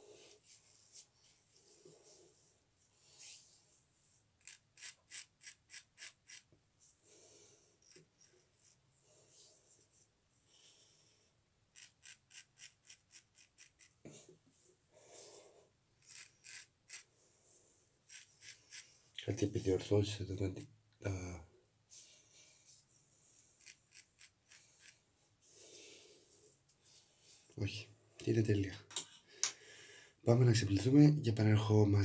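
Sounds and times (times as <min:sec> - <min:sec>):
soft breaths: 0:00.0 - 0:04.4, 0:06.7 - 0:11.5, 0:14.0 - 0:15.8, 0:17.0 - 0:19.2, 0:21.8 - 0:23.6, 0:24.5 - 0:28.2, 0:29.1 - 0:30.3
razor scraping stubble: 0:04.4 - 0:06.5, 0:11.7 - 0:14.0, 0:16.0 - 0:17.1, 0:18.1 - 0:19.0, 0:23.4 - 0:25.0.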